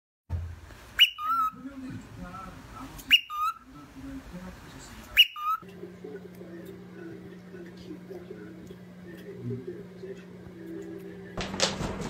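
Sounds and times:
cockatiel whistling: 0:01.0 - 0:01.6, 0:03.1 - 0:03.6, 0:05.1 - 0:05.6.

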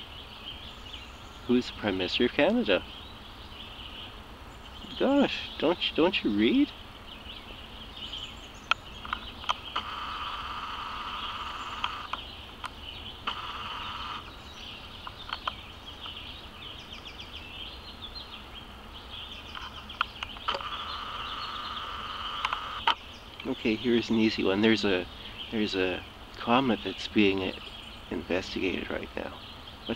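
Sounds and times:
birds chirping: 0:00.0 - 0:29.9
steady high buzz: 0:00.0 - 0:29.9
sharp clicks: 0:08.7 - 0:14.3, 0:15.0 - 0:16.2, 0:19.5 - 0:23.6.

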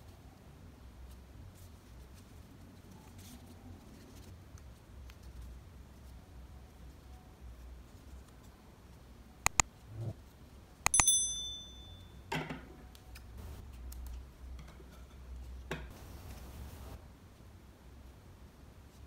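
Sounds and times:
short high bell ding: 0:10.9 - 0:12.2.

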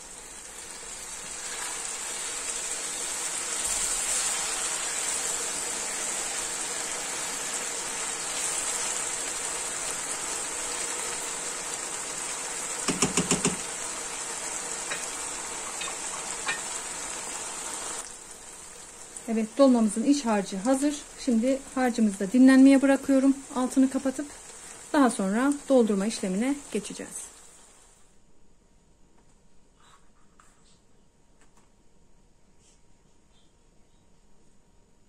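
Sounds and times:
rice sizzling in a pan: 0:00.0 - 0:28.1
knocks: 0:12.9 - 0:13.6.

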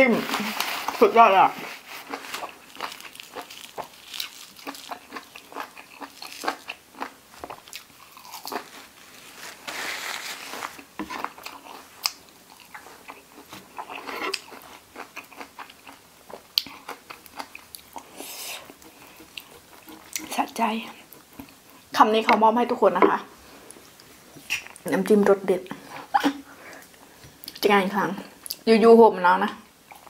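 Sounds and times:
chewing crunchy food: 0:01.6 - 0:09.6, 0:10.4 - 0:22.3.

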